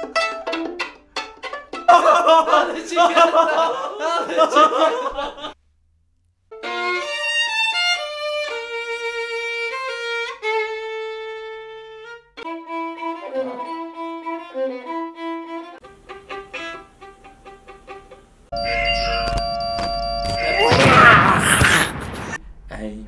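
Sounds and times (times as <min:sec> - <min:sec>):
solo violin bowed: 0:06.5 - 0:18.3.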